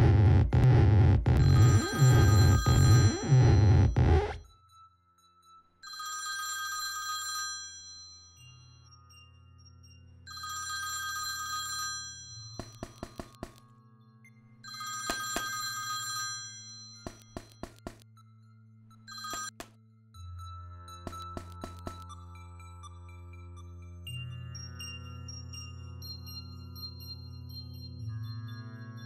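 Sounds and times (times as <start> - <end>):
telephone ringing: 1.4 - 4.2, 10.3 - 13.6, 14.7 - 17.8, 19.1 - 19.6.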